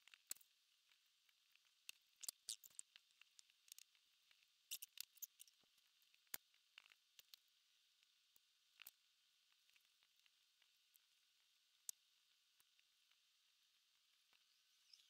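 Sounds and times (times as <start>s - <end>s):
faint small clicks and ticks: 0.0s - 15.0s.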